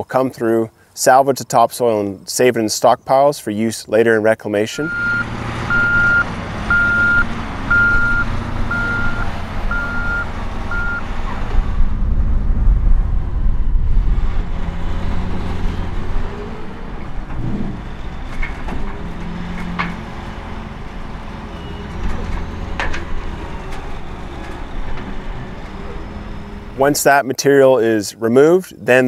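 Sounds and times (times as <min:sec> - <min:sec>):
diesel engines rumbling: 0:04.6 - 0:28.9
backup alarm beeping: 0:04.8 - 0:11.1
loader bucket clanks: 0:04.9 - 0:11.6, 0:14.8 - 0:27.0.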